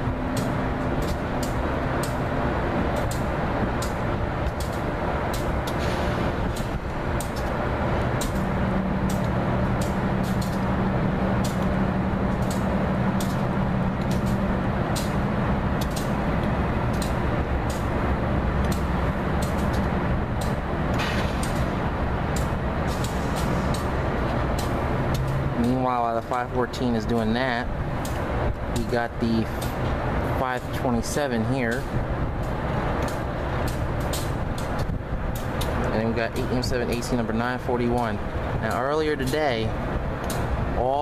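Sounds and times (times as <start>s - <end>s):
diesel locomotive engine drone: 0.0s - 41.0s.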